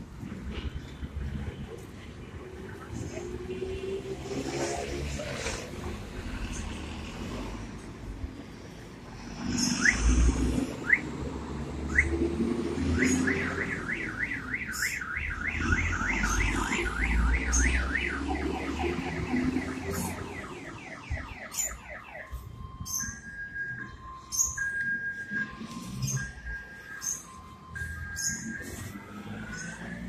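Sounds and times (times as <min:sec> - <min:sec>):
car alarm siren: 0:10.8 - 0:30.0.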